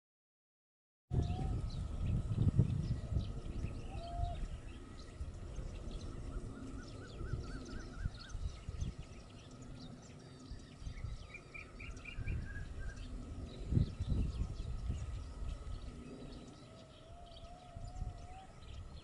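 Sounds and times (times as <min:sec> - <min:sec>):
birds chirping: 0:01.1 - 0:19.0
low background rumble: 0:01.1 - 0:19.0.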